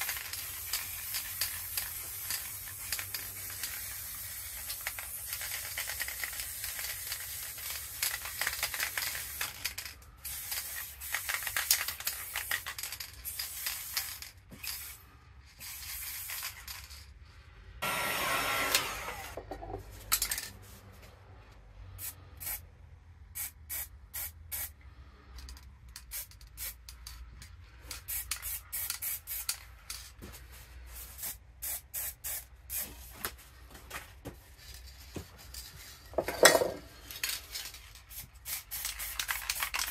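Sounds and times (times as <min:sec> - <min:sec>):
spray paint can hissing: 0:00.0 - 0:15.0, 0:15.6 - 0:16.9, 0:22.0 - 0:22.6, 0:23.4 - 0:24.7, 0:26.0 - 0:27.2, 0:27.9 - 0:30.1, 0:31.0 - 0:33.0, 0:38.0 - 0:39.9.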